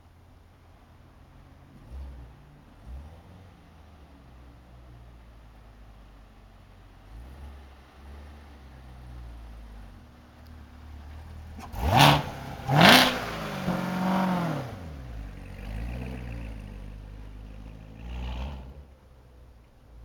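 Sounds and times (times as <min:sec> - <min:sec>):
car engine revving and accelerating: 0:01.6 - 0:05.3, 0:07.0 - 0:19.1.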